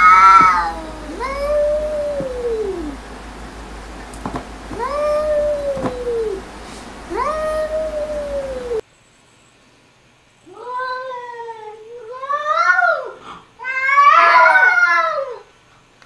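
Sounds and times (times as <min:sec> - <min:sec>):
cats yowling: 0:00.0 - 0:03.2, 0:04.7 - 0:06.5, 0:07.1 - 0:08.8, 0:12.3 - 0:15.4.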